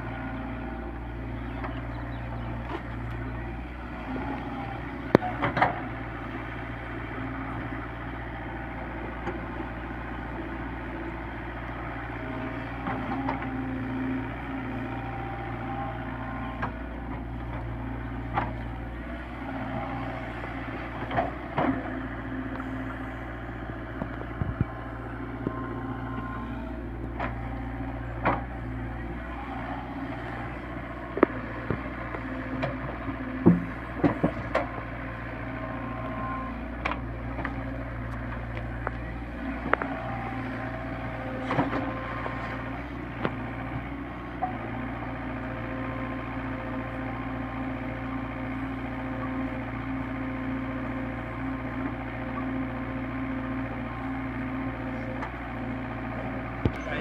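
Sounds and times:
excavator diesel engine running: 0.0 - 57.0
sharp knocks and clanks: 33.4 - 34.7.

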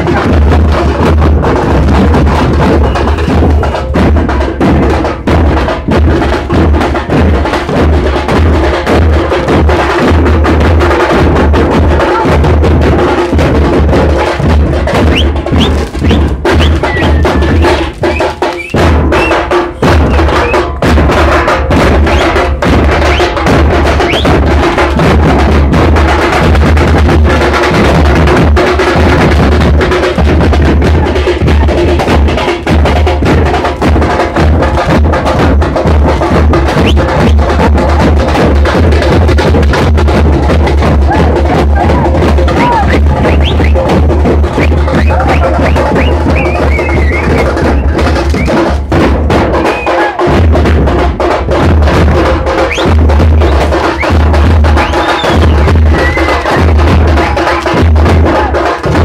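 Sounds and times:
street drums playing fast rhythm: 0.0 - 59.0
rising firework whistles: 54.8 - 56.4.

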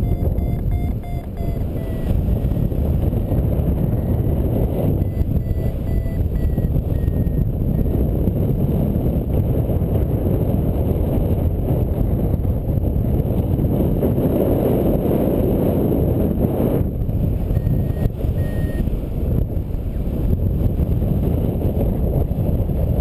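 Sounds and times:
short high beeps: 0.0 - 2.3, 3.9 - 4.3, 5.0 - 8.0, 17.5 - 18.9
wind rushing over microphone: 0.0 - 23.0.

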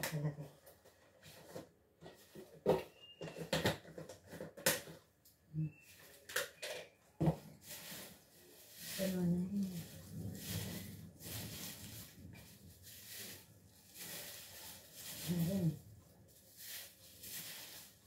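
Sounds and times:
rustling: 7.4 - 18.0.

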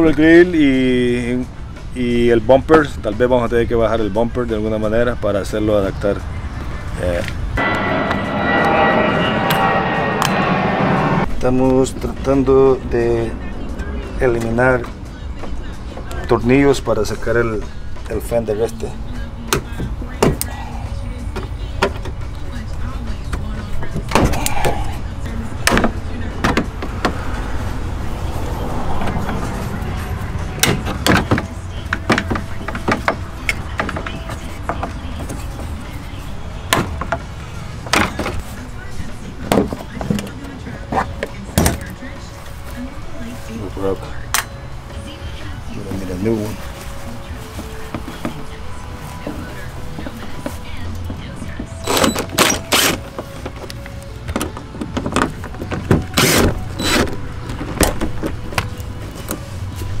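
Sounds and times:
low rumble: 7.5 - 14.6.

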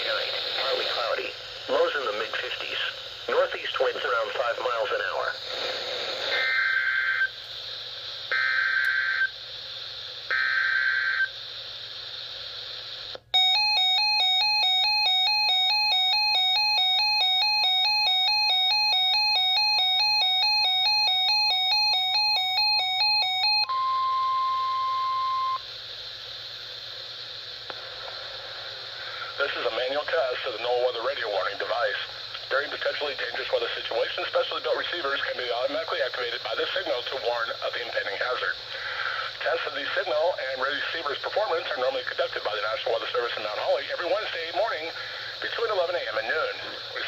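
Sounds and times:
radio static hiss: 0.0 - 13.3, 24.8 - 47.0
screechy digital data tones: 6.3 - 7.4
rapid electronic alarm beeping: 13.4 - 25.6
steady warning tone: 13.4 - 25.7.

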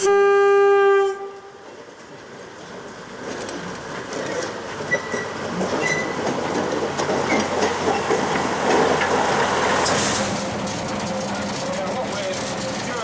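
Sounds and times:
diesel locomotive engine running: 0.8 - 13.0
wheels clicking over rails: 1.4 - 13.0
brief high squeaks: 4.3 - 6.2.

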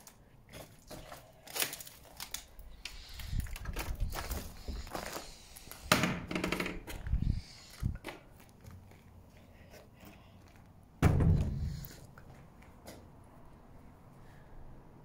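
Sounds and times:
wooden door knocks and thunks: 5.9 - 6.9, 11.0 - 11.8.

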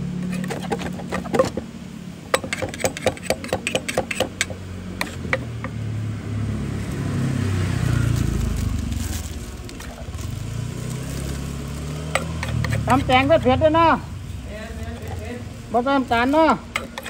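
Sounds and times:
vehicle engine running: 0.0 - 17.0
pestle pounding in a mortar: 0.2 - 5.8, 12.1 - 13.2, 16.7 - 17.0.

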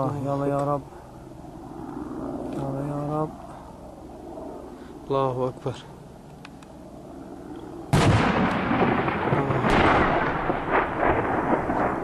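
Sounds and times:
bomb explosion with rumble: 7.9 - 12.0.

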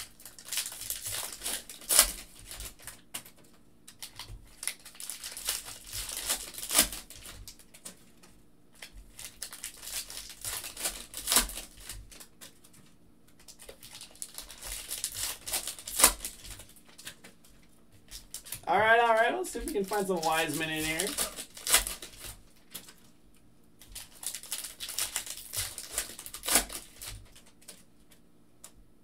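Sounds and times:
foil packs ripping open: 0.0 - 8.0, 8.8 - 12.7, 13.4 - 23.1, 23.8 - 27.8
foil wrappers crinkling: 0.0 - 23.2, 23.8 - 27.9.

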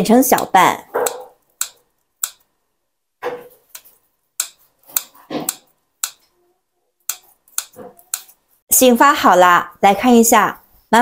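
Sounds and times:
scissors snipping: 0.4 - 2.4, 3.7 - 6.2, 7.1 - 8.4.

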